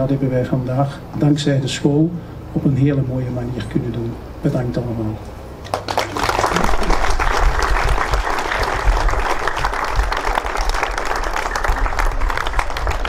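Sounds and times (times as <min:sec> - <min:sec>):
crowd applauding: 0:05.6 - 0:13.0.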